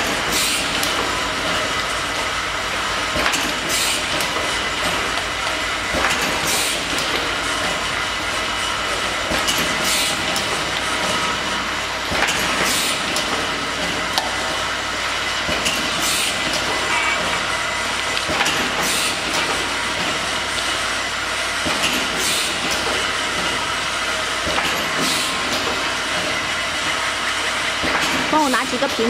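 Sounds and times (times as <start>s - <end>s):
bottling machine din: 0.0s - 29.0s.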